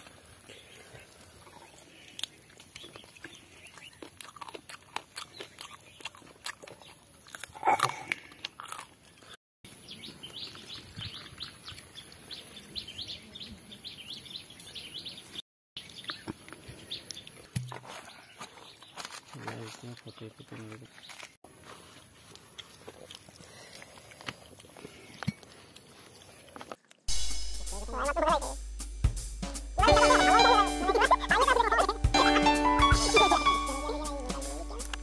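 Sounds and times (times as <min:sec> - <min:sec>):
small birds chirping: 0:00.0 - 0:07.8, 0:09.0 - 0:21.4, 0:22.2 - 0:26.9
crunching and chewing: 0:00.0 - 0:12.7, 0:15.8 - 0:27.1.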